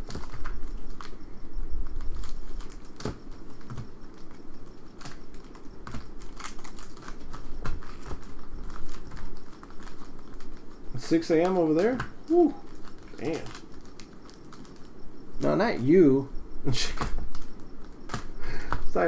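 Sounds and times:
foil wrapper crinkling: 0:00.0 - 0:01.2, 0:01.8 - 0:15.0.

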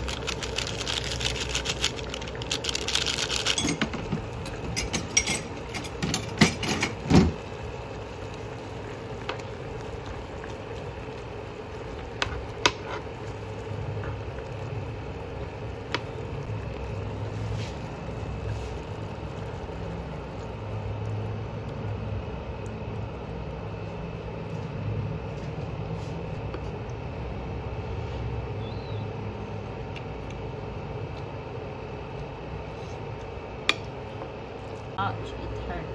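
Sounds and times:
pot of noodles bubbling: 0:00.0 - 0:35.0.

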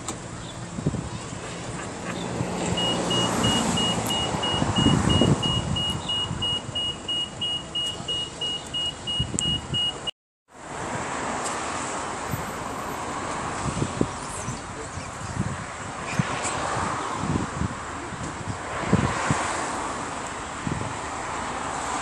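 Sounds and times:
high electronic beeps: 0:02.8 - 0:10.1.

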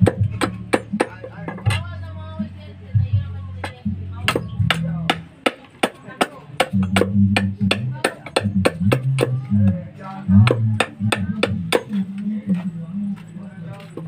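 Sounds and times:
background music with bassline: 0:00.0 - 0:05.5, 0:06.1 - 0:14.0
machete chopping wood: 0:03.6 - 0:09.4, 0:10.4 - 0:12.0.

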